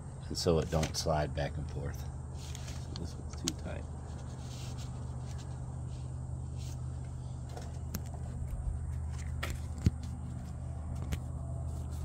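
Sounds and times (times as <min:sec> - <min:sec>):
steady low hum: 0:00.0 - 0:12.0
phone being handled: 0:07.4 - 0:12.0.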